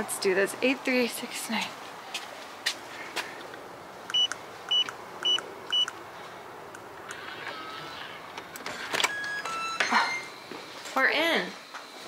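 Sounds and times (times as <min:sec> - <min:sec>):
keypad lock beeps: 0:04.1 - 0:05.9.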